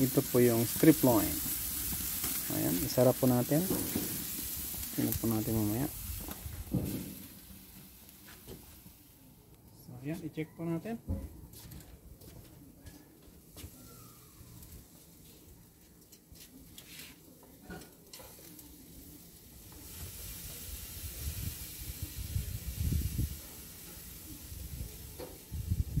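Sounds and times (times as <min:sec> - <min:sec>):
steaks sizzling on grill: 0:00.0 - 0:09.3, 0:13.5 - 0:15.9, 0:17.8 - 0:26.0.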